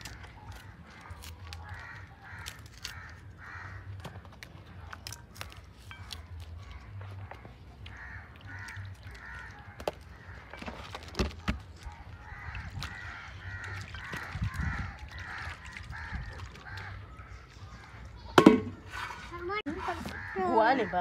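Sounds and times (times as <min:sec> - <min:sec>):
pea pods snapping open: 0:00.0 - 0:03.2.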